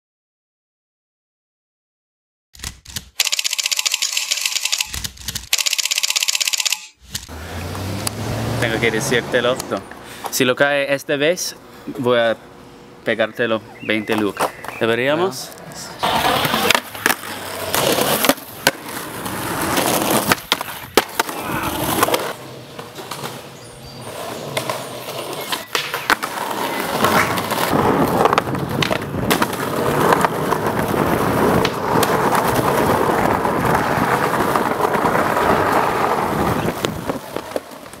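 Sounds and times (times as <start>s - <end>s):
skateboard wheels rolling on concrete: 7.0s - 10.7s, 13.8s - 38.0s
skateboard clacks: 16.0s - 23.4s, 24.2s - 38.0s.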